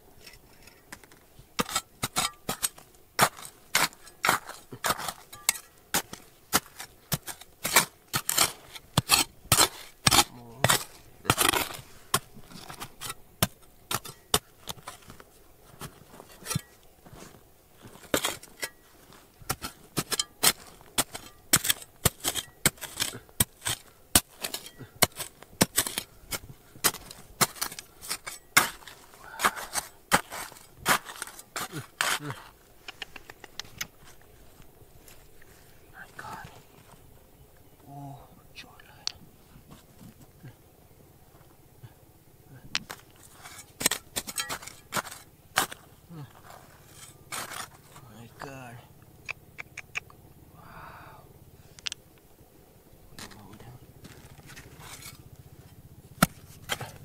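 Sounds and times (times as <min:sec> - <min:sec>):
hand tools striking stone: 0:00.6 - 0:15.2, 0:19.5 - 0:32.4, 0:42.8 - 0:47.9, 0:56.2 - 0:57.0.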